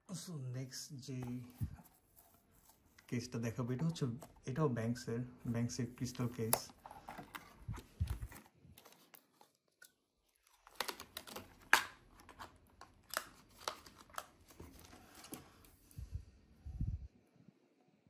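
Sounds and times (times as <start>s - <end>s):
plastic packaging clicks and crackles: 6.4s - 15.4s.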